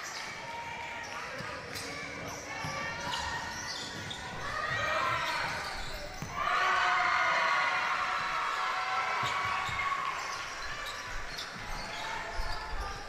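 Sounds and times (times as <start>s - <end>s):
basketball bouncing: 4.0s - 6.4s.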